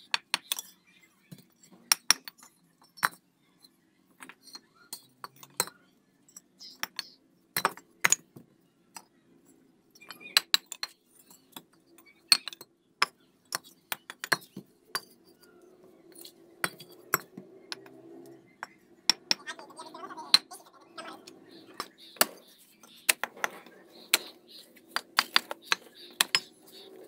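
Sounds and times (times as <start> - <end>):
hammer tapping bricks: 0.1 - 3.2, 6.6 - 8.4, 10.0 - 11.0, 12.3 - 15.5, 16.1 - 19.6, 20.3 - 27.0
bricks clinking together: 16.1 - 17.9, 21.3 - 27.0.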